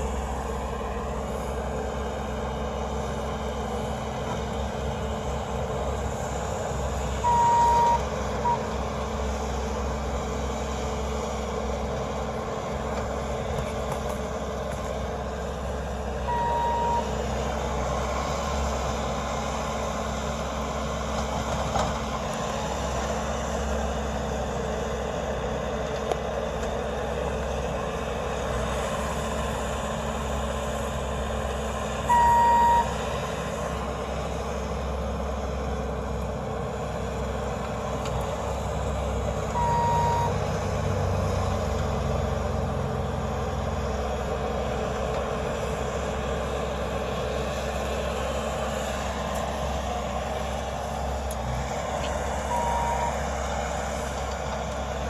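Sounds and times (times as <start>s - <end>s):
diesel engine running: 0.0s - 55.0s
backup alarm beep: 7.2s - 8.7s, 16.3s - 17.1s, 32.1s - 33.0s, 39.6s - 40.4s, 52.5s - 53.2s.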